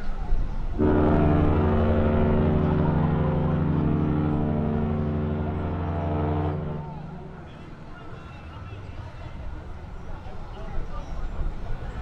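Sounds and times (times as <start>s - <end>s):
ship horn long blast: 0.8s - 8.6s.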